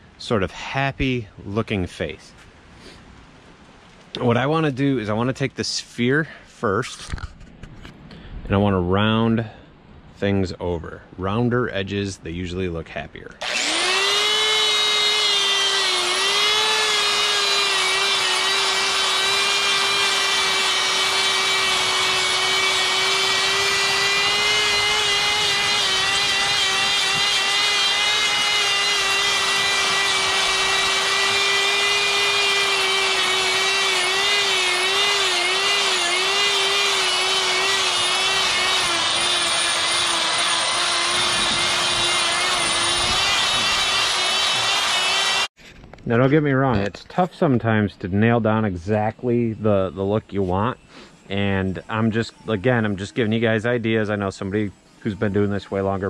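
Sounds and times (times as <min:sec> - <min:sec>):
die grinder whining into wood: 0:13.4 - 0:45.5.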